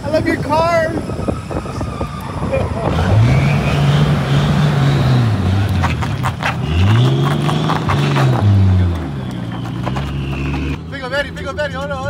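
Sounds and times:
car engine revving hard: 2.8 - 10.9.

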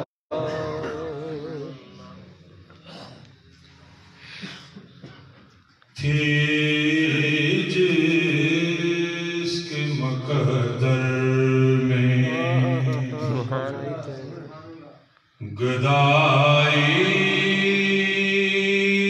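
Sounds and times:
man chanting unaccompanied: 6.0 - 14.6.

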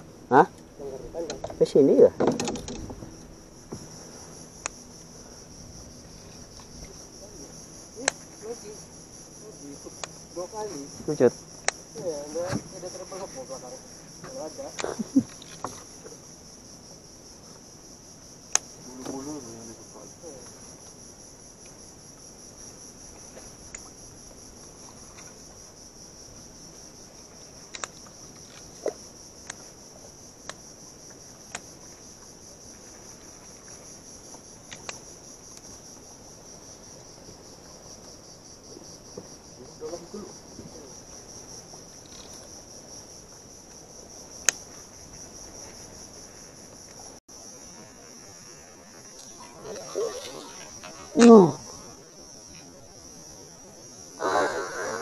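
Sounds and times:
insects droning high-pitched: 0.0 - 55.0.

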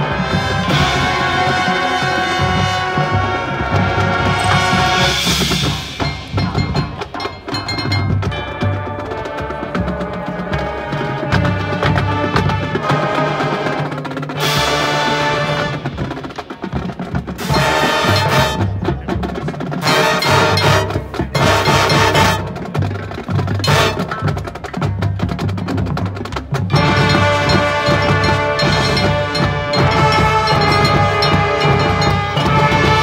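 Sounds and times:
percussion: 0.0 - 33.0
low brass chords: 17.4 - 18.7, 26.7 - 33.0.

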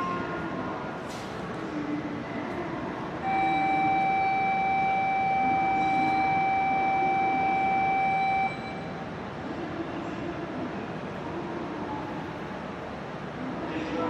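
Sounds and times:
train and station hum: 0.0 - 14.0
electronic warning tone: 3.2 - 9.0.

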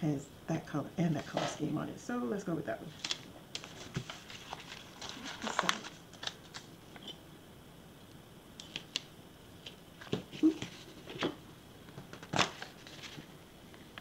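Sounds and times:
paper rustling: 2.9 - 7.2, 8.6 - 13.3.

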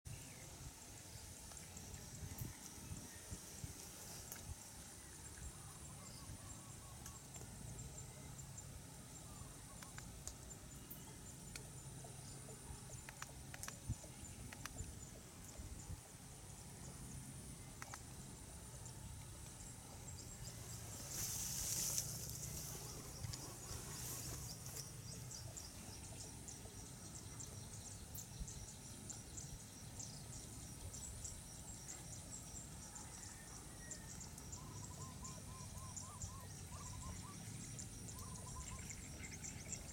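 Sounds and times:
insects whining: 0.1 - 39.9
insect ticking chirps: 0.6 - 39.9.

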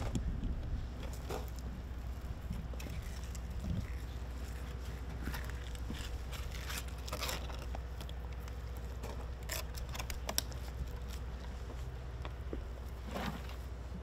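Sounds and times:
steady low hum: 0.0 - 14.0
knife cutting and scraping fish: 2.8 - 7.8.

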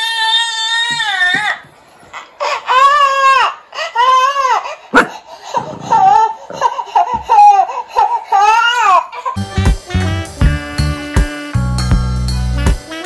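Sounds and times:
baby crying: 0.0 - 9.7.

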